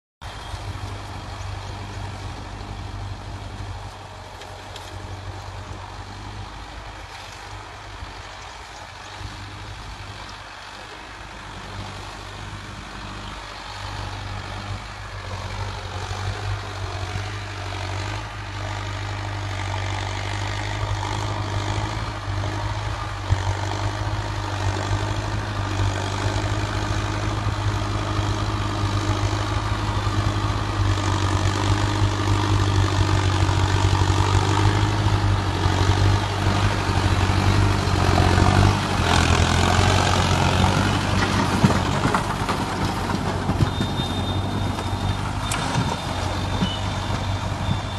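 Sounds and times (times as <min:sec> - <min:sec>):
tractor diesel engine running: 0:00.2 - 0:47.9.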